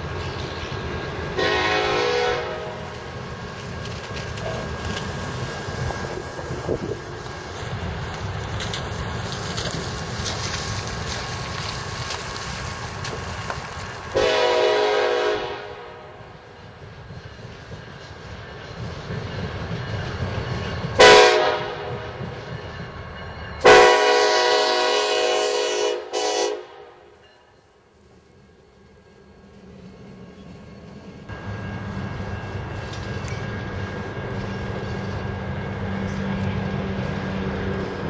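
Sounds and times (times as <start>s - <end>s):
train air horn: 1.4s - 3.0s, 14.1s - 16.4s, 21.0s - 22.2s, 23.6s - 27.2s.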